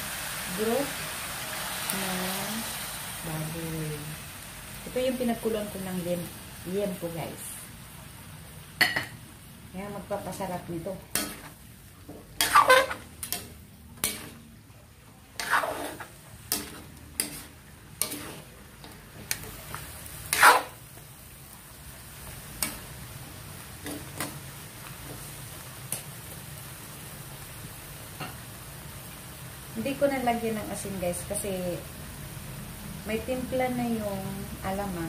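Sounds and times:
faint pan sizzle: 0:00.0 - 0:35.0
spatula scraping a wok: 0:11.0 - 0:14.6, 0:15.3 - 0:21.0, 0:23.7 - 0:24.4.

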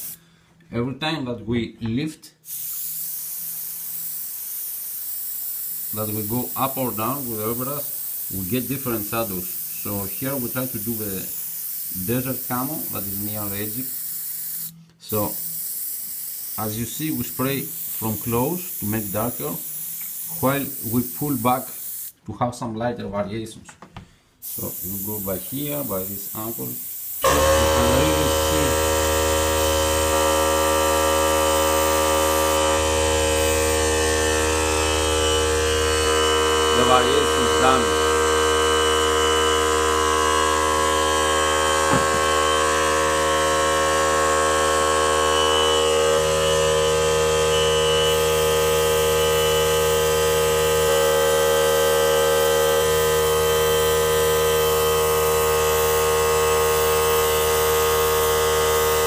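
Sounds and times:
airbrush compressor humming: 0:24.4 - 0:59.0.

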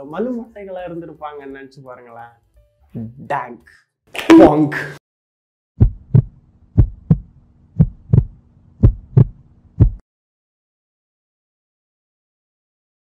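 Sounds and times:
heartbeat lub-dub beats: 0:05.8 - 0:10.0.

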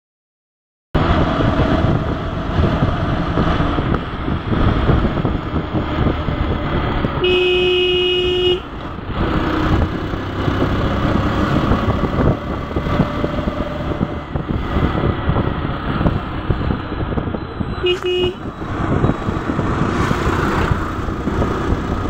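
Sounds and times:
wind rushing: 0:01.0 - 0:07.4, 0:08.6 - 0:22.0
motorcycle engine: 0:01.0 - 0:22.0
vehicle horn: 0:07.2 - 0:08.7, 0:17.6 - 0:18.5.

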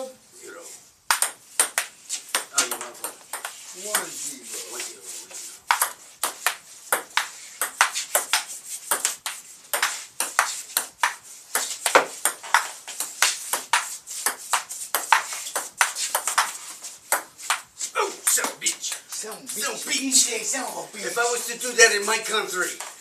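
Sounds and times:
table tennis ball bouncing on table: 0:01.1 - 0:04.1, 0:05.7 - 0:19.6
table tennis ball hitting paddles: 0:01.1 - 0:04.1, 0:05.6 - 0:19.6.

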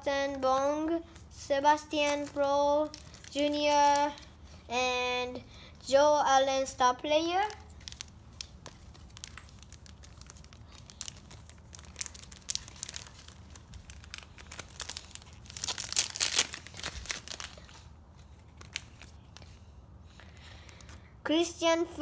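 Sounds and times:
foil wrapper crinkling and tearing: 0:02.0 - 0:04.3, 0:07.4 - 0:19.6.

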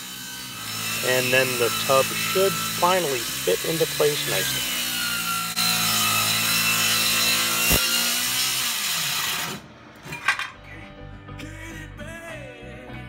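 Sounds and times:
circular saw cutting wood: 0:00.0 - 0:09.6.

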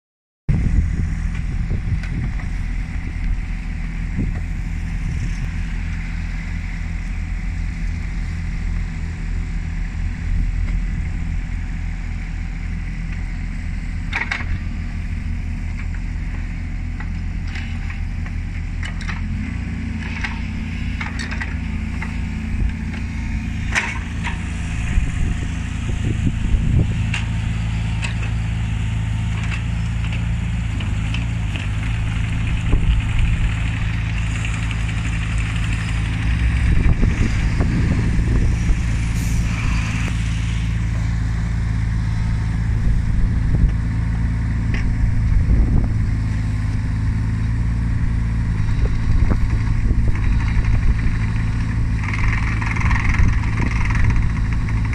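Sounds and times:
diesel engine running: 0:00.5 - 0:54.9
hydraulics working: 0:15.8 - 0:43.8.

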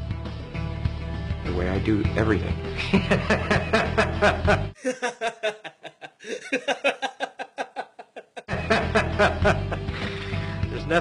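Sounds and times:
background music: 0:00.0 - 0:11.0
man laughing: 0:02.8 - 0:10.1.

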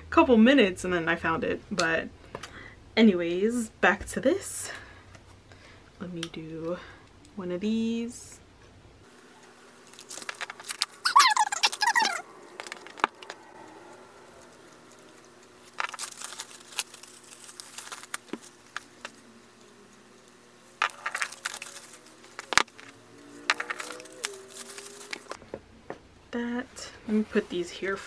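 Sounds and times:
crinkly plastic wrap: 0:09.8 - 0:13.4, 0:14.4 - 0:19.3, 0:20.8 - 0:22.9, 0:23.5 - 0:25.4.

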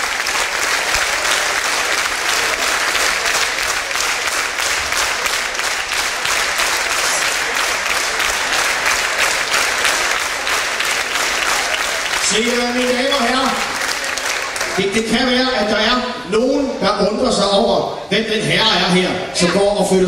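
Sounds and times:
audience clapping rhythmically: 0:00.0 - 0:15.7.

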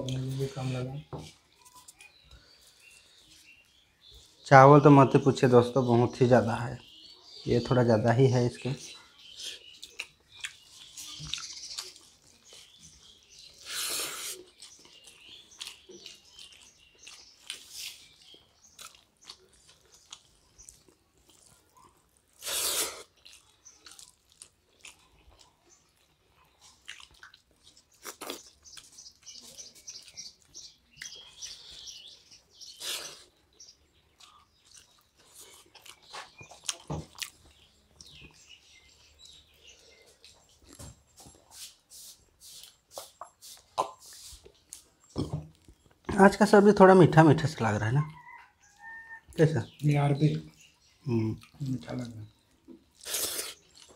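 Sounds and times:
people chewing food: 0:00.0 - 0:53.9.

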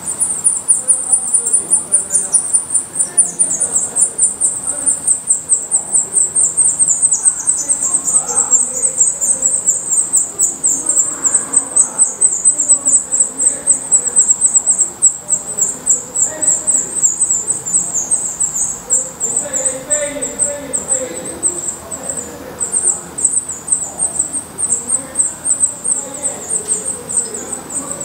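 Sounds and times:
nestlings begging peeps: 0:00.0 - 0:28.0.

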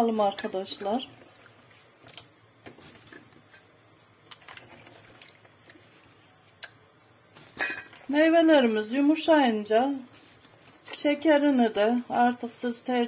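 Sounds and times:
small splashes and drips: 0:00.9 - 0:03.3, 0:04.2 - 0:08.1
fruit sloshing in water: 0:04.2 - 0:06.1.

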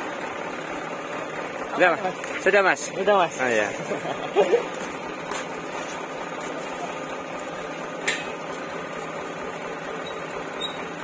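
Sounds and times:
electric lift motor humming: 0:03.7 - 0:11.0.

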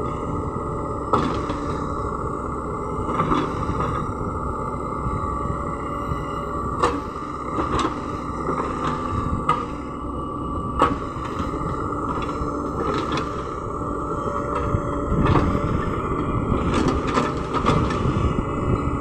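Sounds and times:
excavator engine under load: 0:00.0 - 0:19.0.

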